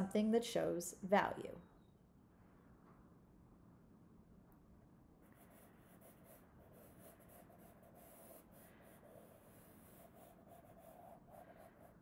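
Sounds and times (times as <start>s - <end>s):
pencil scratching on paper: 5.2s - 12.0s.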